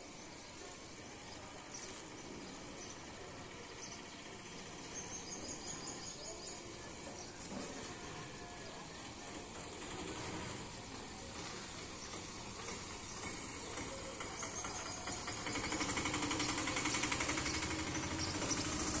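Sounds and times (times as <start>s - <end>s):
engine running with rapid beat: 9.6s - 19.0s.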